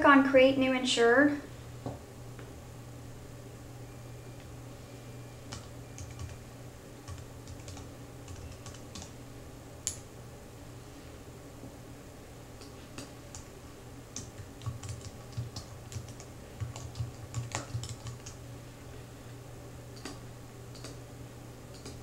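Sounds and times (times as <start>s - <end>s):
steady low hum: 0.0s - 22.0s
computer keyboard typing: 5.5s - 6.4s, 7.0s - 9.1s, 12.6s - 13.5s, 14.1s - 18.4s, 20.0s - 21.0s, 21.7s - 22.0s.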